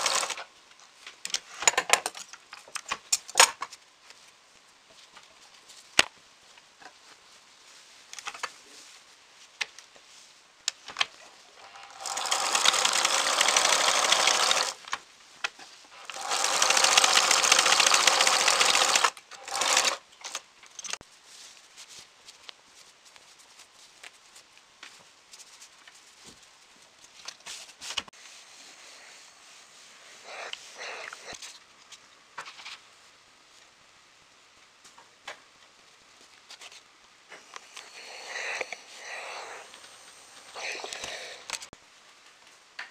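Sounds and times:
sewing machine stitching: 0.0s - 0.4s, 11.6s - 14.9s, 16.0s - 20.4s.

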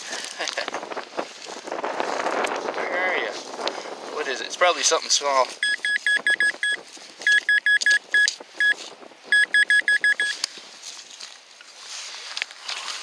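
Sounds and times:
scraping of soil and grass: 0.0s - 5.6s, 10.2s - 13.0s
metal detector beeping: 5.6s - 10.4s.

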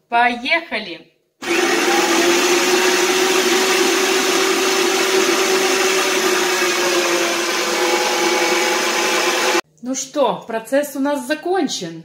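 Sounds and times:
electric meat grinder motor humming: 1.4s - 9.6s.

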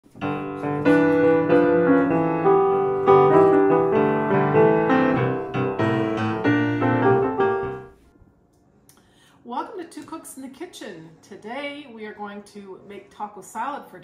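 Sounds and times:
piano melody over chords: 0.0s - 8.0s.

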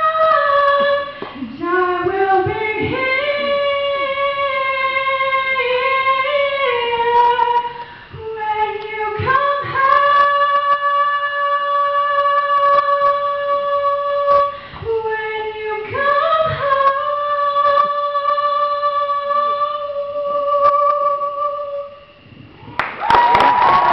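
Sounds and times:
girl singing: 0.0s - 22.2s
singer breathing: 7.7s - 8.2s, 14.5s - 14.9s.

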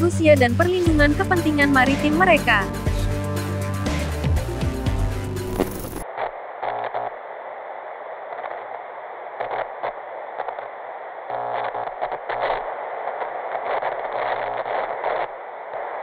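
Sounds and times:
television static hiss: 5.5s - 16.0s.

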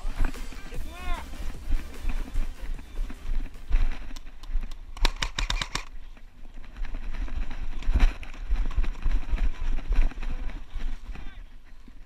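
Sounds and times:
footsteps in dry grass: 0.0s - 4.9s
sharp clicks: 3.8s - 6.0s.

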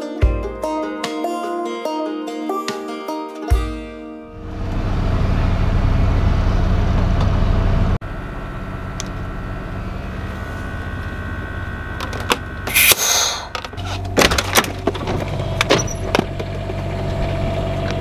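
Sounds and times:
vehicle engine running: 4.3s - 18.0s
faint high whine: 8.1s - 13.7s.

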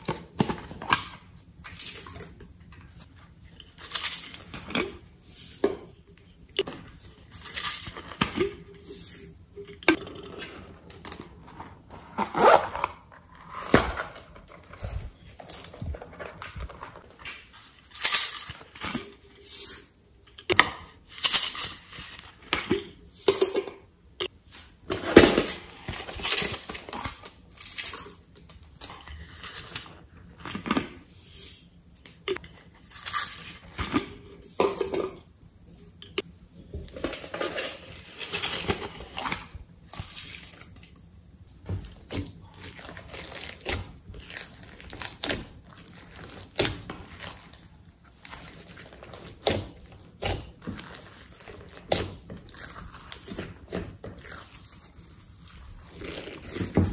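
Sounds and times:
plastic containers handled: 0.0s - 19.3s, 41.6s - 56.9s.

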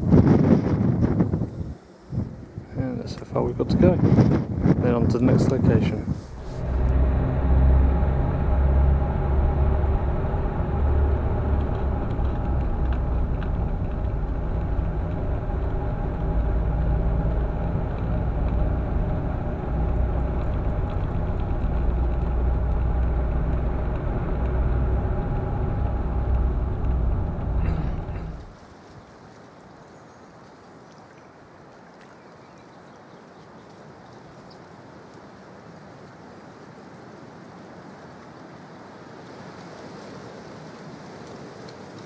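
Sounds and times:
road rumble: 0.0s - 29.8s
car engine drone: 5.7s - 28.6s.

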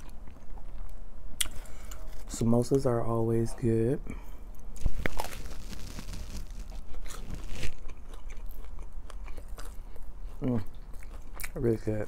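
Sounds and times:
crunchy chewing: 4.5s - 12.0s
crunch of fried pastry: 4.8s - 11.9s.

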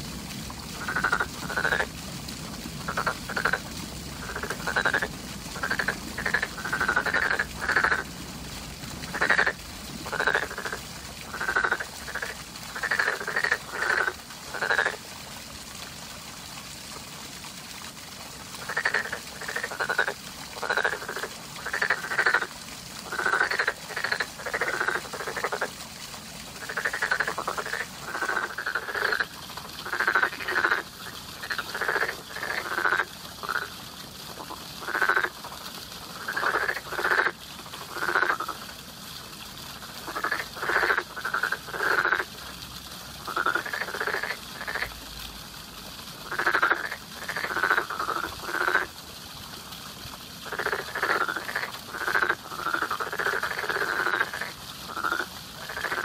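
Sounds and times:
frog croaking: 0.7s - 1.9s, 2.8s - 3.6s, 4.2s - 8.1s, 9.1s - 15.0s, 18.6s - 25.7s, 26.6s - 33.7s, 34.3s - 35.5s, 36.2s - 38.6s, 40.0s - 42.4s, 43.3s - 44.9s, 46.2s - 48.9s, 50.4s - 56.0s.

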